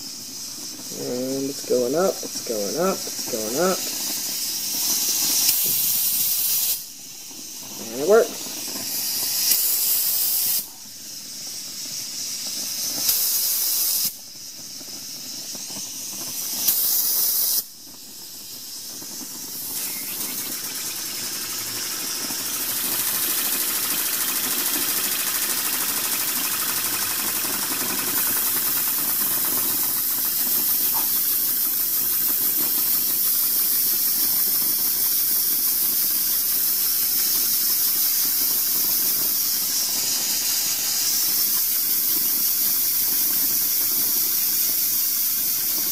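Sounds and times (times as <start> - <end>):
steam hissing from relief valve: 0.0 - 45.9.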